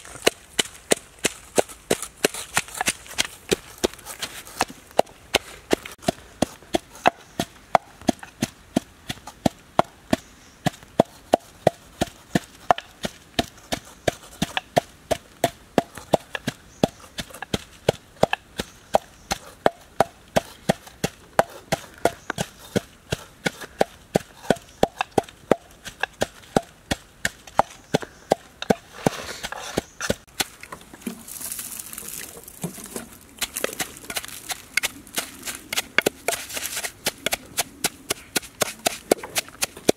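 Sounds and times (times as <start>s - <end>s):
pestle pounding in wooden mortar: 0.0s - 39.9s.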